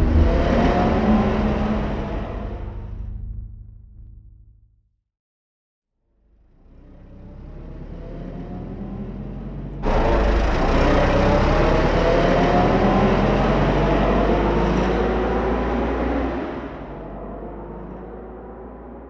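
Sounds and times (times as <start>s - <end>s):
loud rushing noise: 0.0s - 3.2s, 9.8s - 14.2s
engine rumble with rising whine: 0.0s - 4.8s, 6.2s - 19.0s.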